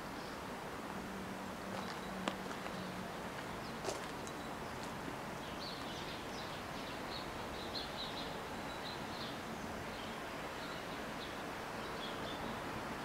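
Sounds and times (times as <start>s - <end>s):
outdoor background hiss: 0.0s - 13.0s
small birds chirping: 1.7s - 12.7s.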